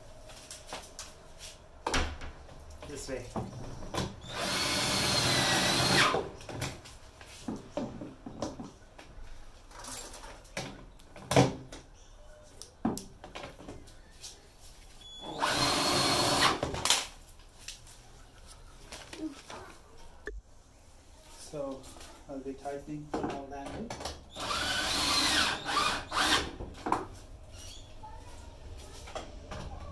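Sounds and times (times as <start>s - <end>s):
power drill whine: 4.2s - 6.2s, 15.2s - 16.6s, 24.4s - 26.5s.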